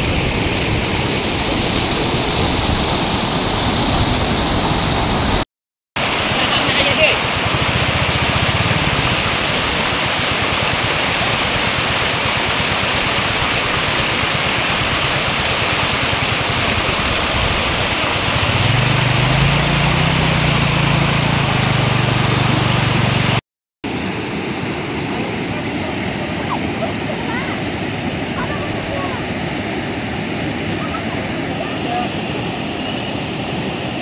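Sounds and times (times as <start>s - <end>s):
floodwater rushing: 0.0s - 5.4s, 6.0s - 34.0s.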